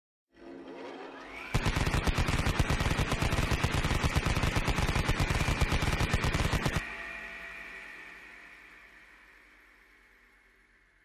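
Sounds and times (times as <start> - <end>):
whine after gunfire: 1.3 - 6.9
rotary machine gun firing: 1.5 - 6.8.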